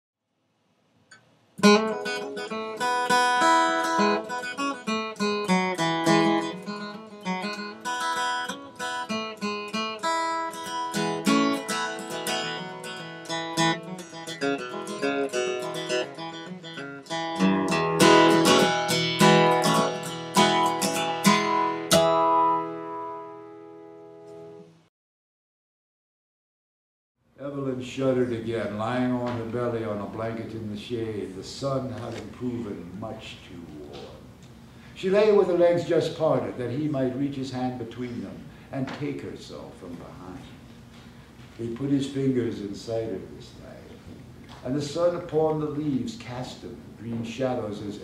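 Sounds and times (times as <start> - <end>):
acoustic guitar music: 1.1 - 24.8.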